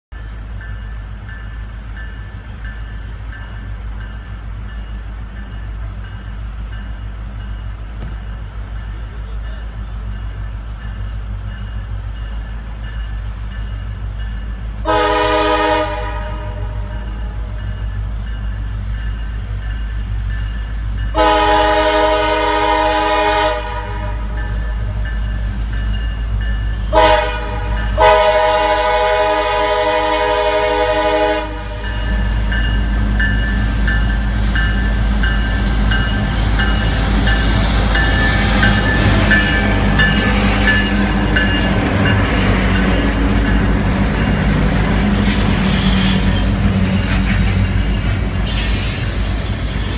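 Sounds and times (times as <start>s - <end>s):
train wheels clattering on rails: 0.1s - 14.7s, 24.2s - 49.9s
locomotive horn blasts: 14.8s - 17.0s, 21.2s - 24.4s, 26.9s - 32.0s.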